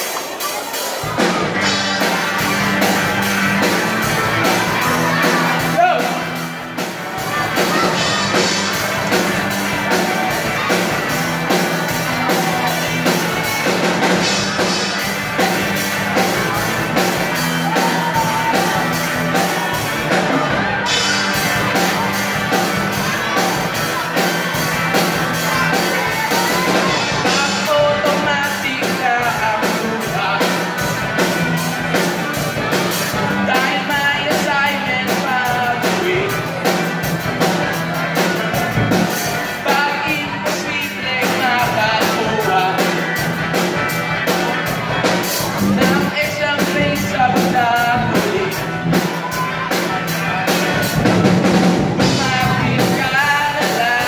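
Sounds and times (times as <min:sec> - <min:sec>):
drum kit beat: 0:00.0 - 0:54.0
electric guitars: 0:00.1 - 0:54.0
man singing: 0:22.6 - 0:31.0, 0:31.9 - 0:37.0, 0:38.1 - 0:43.9, 0:44.6 - 0:54.0.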